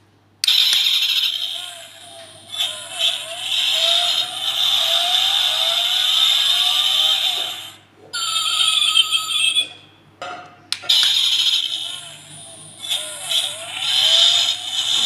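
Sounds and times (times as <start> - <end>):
tinny recorded engine revving: 2.4 - 7.7, 12.7 - 15.0.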